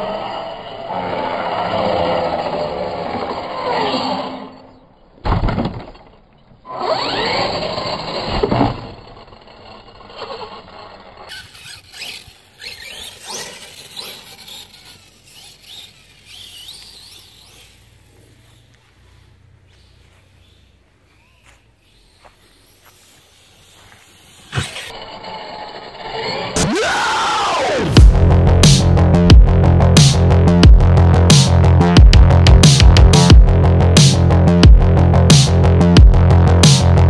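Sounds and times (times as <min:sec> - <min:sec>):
toy car motors whining: 0:00.0 - 0:05.1, 0:05.8 - 0:28.0.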